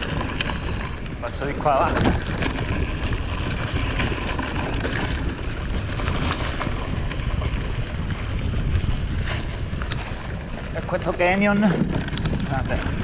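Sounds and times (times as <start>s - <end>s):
bike rattles and clicks: 0.0s - 13.0s
tyres rolling over ground: 0.0s - 13.0s
wind buffeting microphone: 0.0s - 13.0s.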